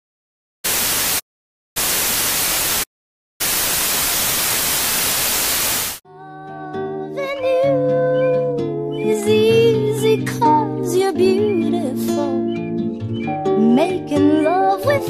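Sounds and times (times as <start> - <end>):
tv static hiss: 0.7 - 1.2, 1.8 - 6.0.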